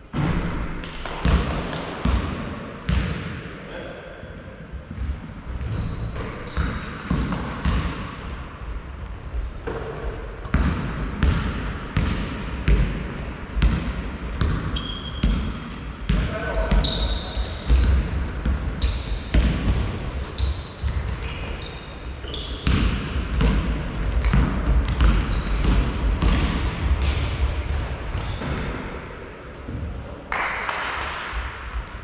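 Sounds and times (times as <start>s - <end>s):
shoes squeaking on court: 4.9s - 7.8s, 13.4s - 22.9s, 24.3s - 26.0s, 28.0s - 28.6s
basketball bouncing on hard floor: 5.6s - 8.0s, 9.6s - 13.0s, 22.6s - 27.9s.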